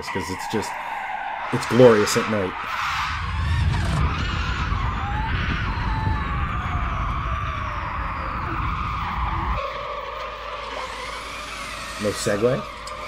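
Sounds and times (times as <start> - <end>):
tyres squealing: 0.0 - 5.1, 7.6 - 13.0
electric motors whining: 0.0 - 13.0
heavy low rumble: 1.5 - 9.6.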